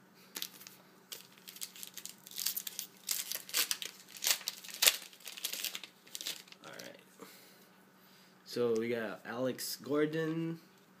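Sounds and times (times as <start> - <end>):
foil wrapper crinkling and tearing: 0.4 - 7.0.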